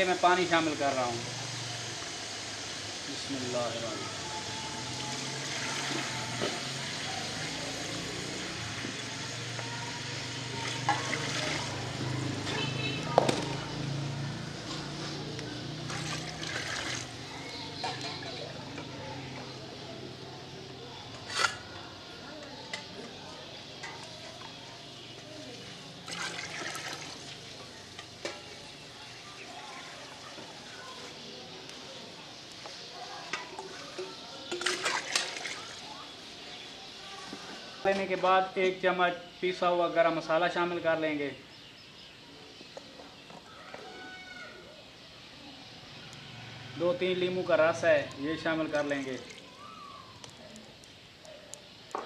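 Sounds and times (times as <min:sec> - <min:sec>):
water pouring into a pot: 0:00.0 - 0:12.1, 0:15.8 - 0:18.7, 0:26.0 - 0:31.0, 0:33.3 - 0:36.4, 0:47.1 - 0:50.9
steady hiss: 0:00.0 - 0:12.8.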